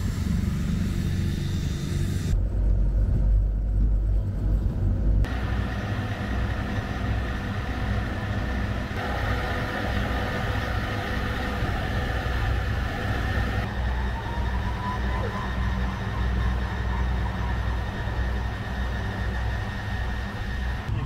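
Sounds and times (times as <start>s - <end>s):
tracked vehicle engine rumbling: 0.0s - 21.0s
thin high whine: 5.3s - 21.0s.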